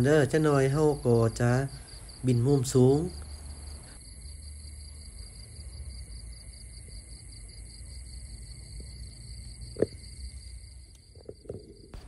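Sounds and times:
night insects trilling: 0.0 - 12.0.

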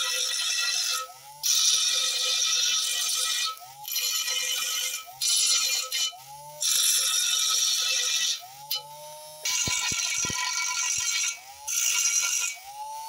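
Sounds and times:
grinding disc on steel: 0.0 - 12.7
motor whine: 3.5 - 4.0, 6.1 - 6.7, 8.0 - 13.0.

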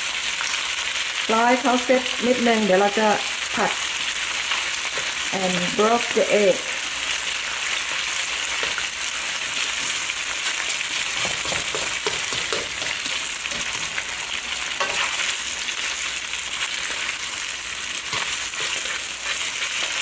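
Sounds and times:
food sizzling in hot oil: 0.0 - 20.0
spatula scraping and stirring: 7.1 - 20.0.

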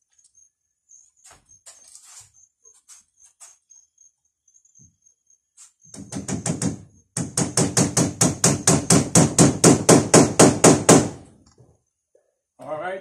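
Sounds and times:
hammer striking a nail: 5.9 - 11.2.

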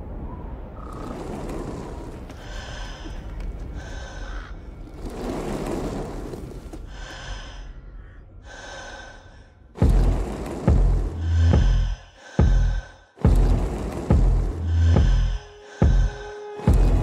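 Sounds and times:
woman breathing heavily and gasping: 11.2 - 13.4, 14.6 - 16.8.

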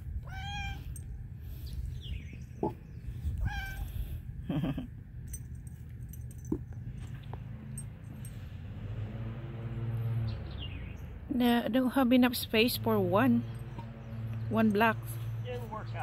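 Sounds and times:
cat meowing: 0.2 - 0.9, 3.4 - 3.9.

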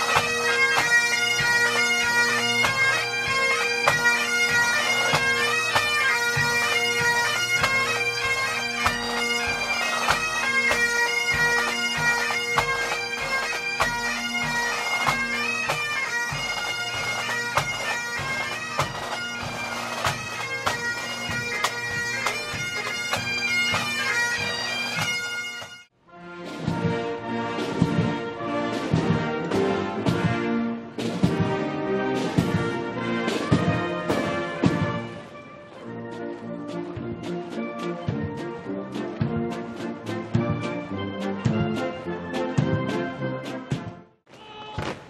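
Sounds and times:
marching drum beat: 0.0 - 25.7, 26.6 - 30.4, 31.0 - 31.6, 32.2 - 35.1
bagpipes playing a tune: 0.0 - 25.9.

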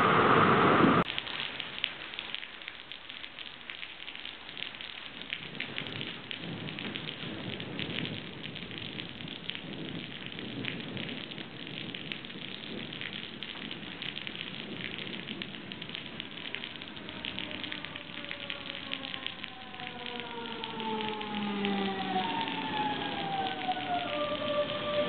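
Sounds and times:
electric train whine: 0.0 - 1.0
heavy rain: 0.0 - 25.0.

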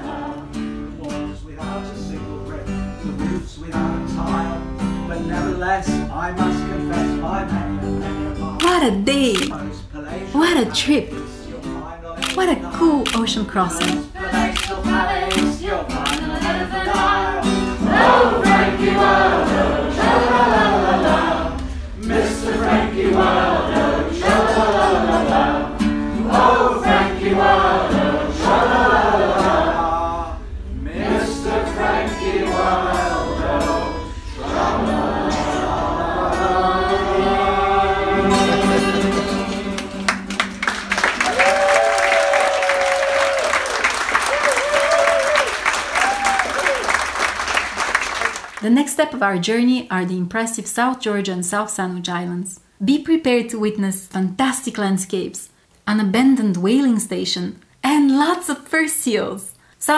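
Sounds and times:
group singing: 0.0 - 5.6, 13.1 - 41.1
acoustic guitar: 0.0 - 44.2
applause: 13.8 - 14.0, 39.7 - 48.7.

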